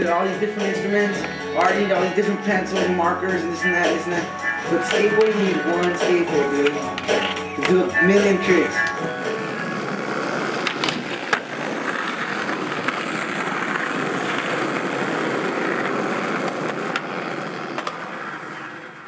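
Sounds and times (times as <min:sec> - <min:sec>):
skateboard wheels rolling on asphalt: 0:00.0 - 0:19.0
skateboard clicks: 0:04.8 - 0:19.0.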